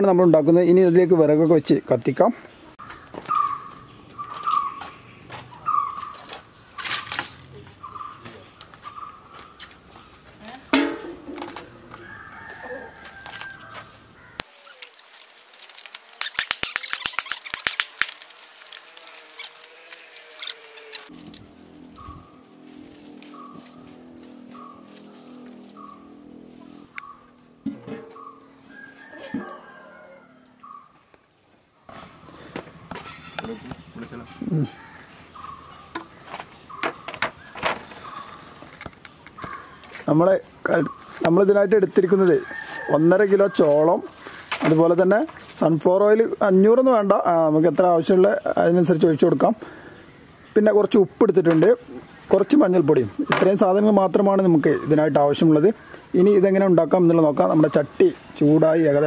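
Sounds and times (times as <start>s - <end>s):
rooster crowing: 11.4s - 14.4s, 27.8s - 30.8s, 34.2s - 35.5s, 42.1s - 44.2s
dry sticks snapping: 14.4s - 22.3s, 22.9s - 29.6s.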